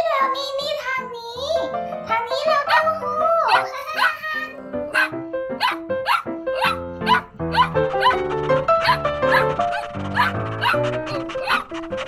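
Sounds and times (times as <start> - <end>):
cheerful background music: 0.0 - 12.0
small dog yipping: 2.7 - 4.3, 4.9 - 8.2, 8.8 - 11.7.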